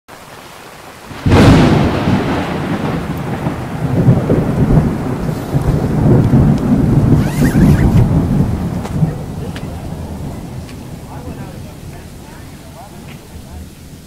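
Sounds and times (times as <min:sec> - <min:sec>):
thunder crack and rumble: 0:01.0 - 0:14.0.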